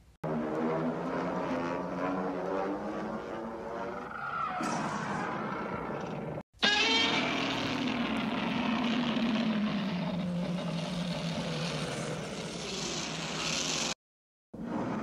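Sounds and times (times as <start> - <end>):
monster roar: 4.0 - 13.9.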